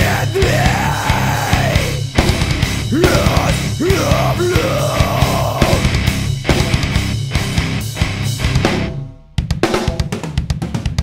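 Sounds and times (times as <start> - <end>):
sliding vocal line: 0.0 - 6.0
heavy metal music: 0.0 - 9.2.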